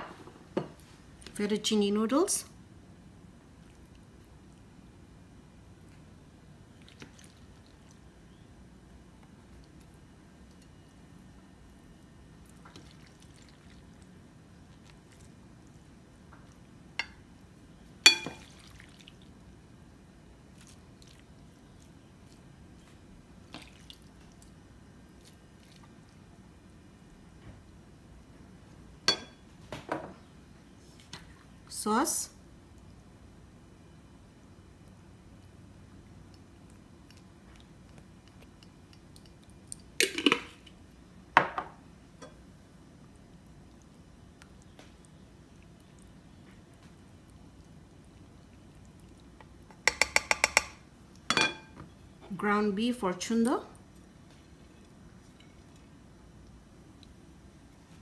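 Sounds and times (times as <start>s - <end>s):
low background hum: 0.0s - 58.0s
tongs clinking on glass dish: 18.0s - 18.5s, 29.1s - 29.4s, 49.9s - 51.8s
kitchenware clattering on countertop: 18.1s - 18.4s, 49.9s - 51.8s.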